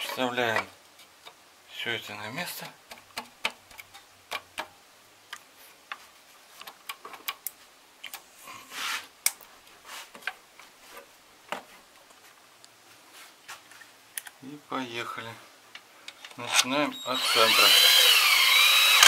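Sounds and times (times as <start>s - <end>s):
short scraping rub: 8.6s - 9.1s.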